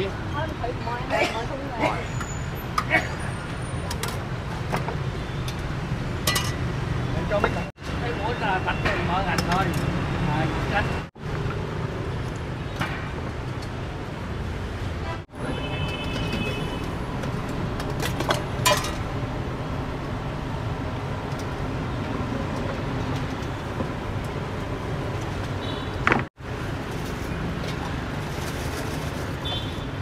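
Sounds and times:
street traffic: 0.0s - 30.0s
metal cookware clinking: 6.3s - 6.7s, 18.2s - 19.1s.

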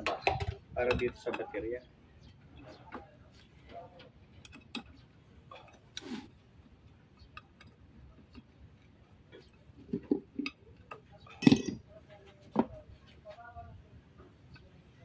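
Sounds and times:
metal parts clinking and knocking: 11.3s - 11.8s
ringing metallic clank: 11.4s - 11.8s.

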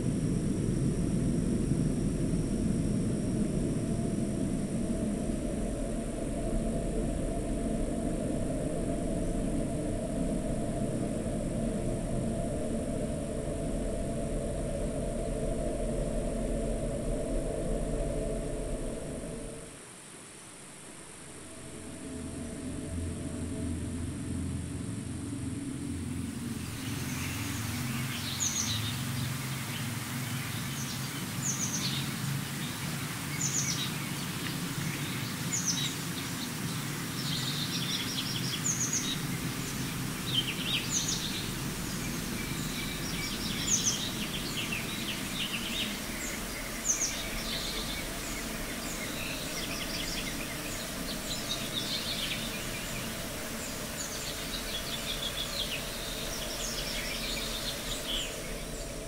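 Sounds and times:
low background rumble: 0.0s - 59.0s
birds singing: 26.4s - 59.0s.

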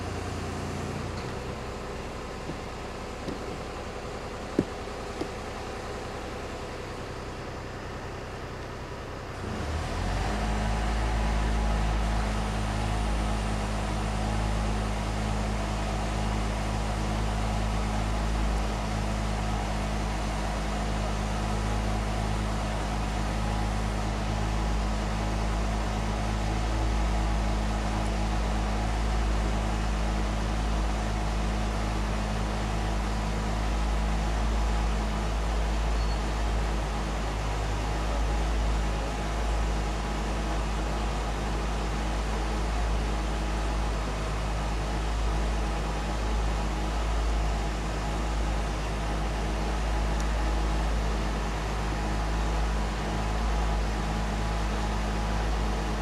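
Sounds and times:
truck engine humming: 0.0s - 7.3s.

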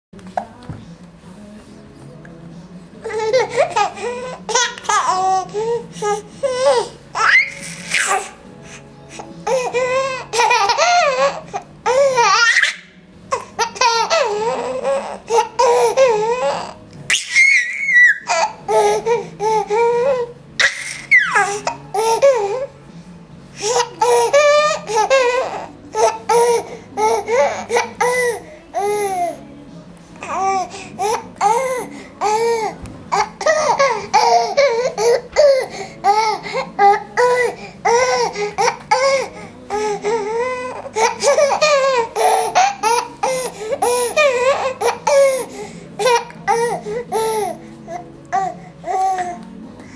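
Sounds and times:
baby squealing: 7.2s - 8.3s, 10.4s - 12.9s, 13.8s - 19.1s, 20.6s - 21.6s.

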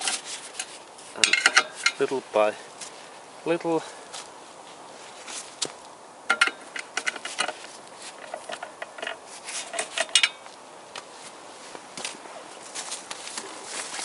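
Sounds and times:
wrench clicking on metal bolts: 6.3s - 7.6s, 8.3s - 10.4s.

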